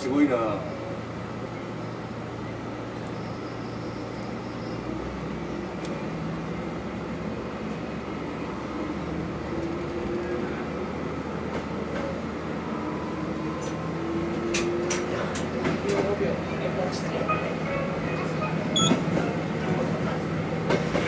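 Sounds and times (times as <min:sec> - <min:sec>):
diesel railcar drive whine: 0:00.0 - 0:21.0
train rolling rumble: 0:00.0 - 0:21.0.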